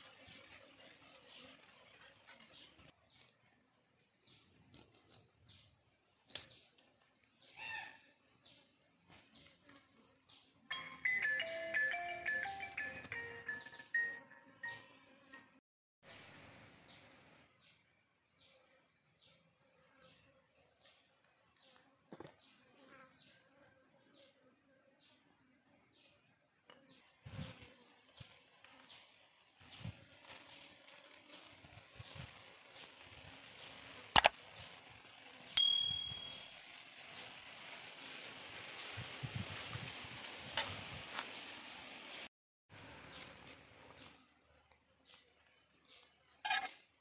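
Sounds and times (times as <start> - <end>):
bird chirps: 35.6 - 36.5.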